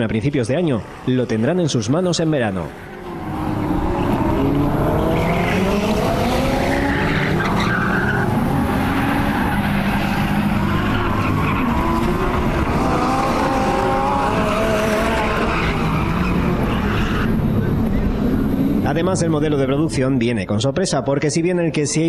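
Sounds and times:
car engine revving hard: 3.0 - 17.4.

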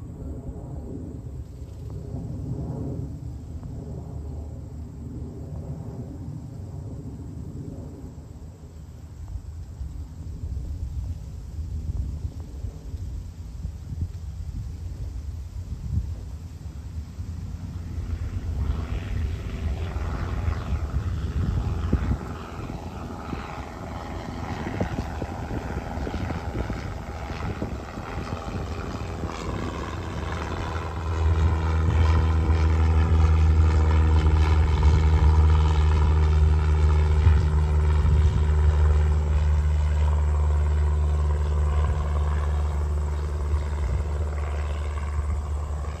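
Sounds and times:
propeller plane engine drone: 0.0 - 46.0.

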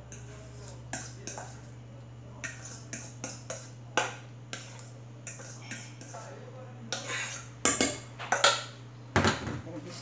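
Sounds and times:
spoon scraping metal bowl: 0.1 - 1.8, 2.4 - 8.6.

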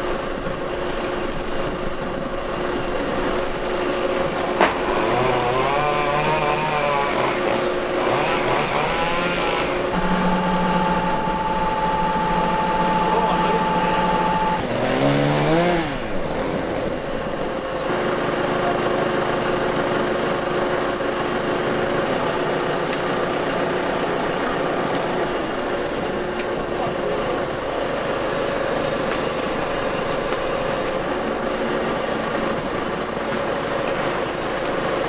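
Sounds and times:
engine running and revving: 4.2 - 11.5, 12.6 - 26.1.

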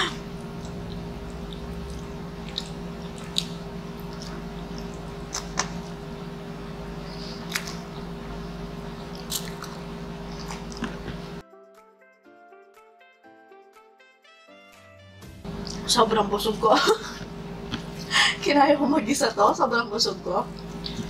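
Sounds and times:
steady low hum: 0.0 - 11.4, 15.4 - 21.0
sharp wet clicks: 0.6 - 5.9
chewing noodles: 0.6 - 6.0, 9.0 - 11.2.

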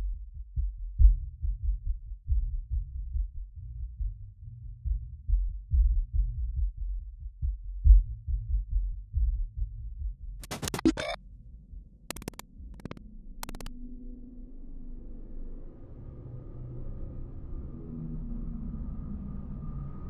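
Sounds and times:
low pulsing throb: 0.0 - 11.2
crackling burst of static: 10.4 - 11.2, 12.1 - 13.7
sharp glitchy clicks: 10.4 - 11.2, 12.1 - 13.7
faint low drone: 10.8 - 20.0.

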